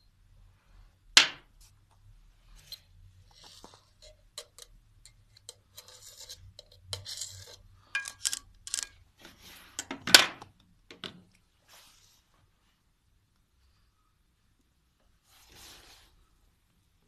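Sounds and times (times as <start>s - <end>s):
gloved hands scraping and rubbing: 2.4s - 9.9s, 15.2s - 16.3s.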